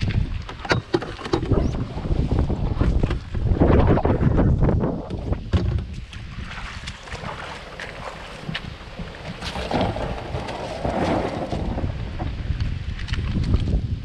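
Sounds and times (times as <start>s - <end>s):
wind rumbling on microphone: 0.0s - 14.0s
water splashes and drips: 5.9s - 13.8s.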